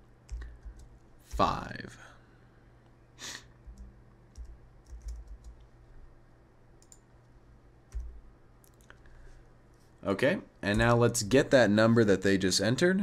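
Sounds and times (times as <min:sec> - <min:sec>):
low steady hum: 0:00.0 - 0:13.0
keyboard keystrokes: 0:03.7 - 0:05.6.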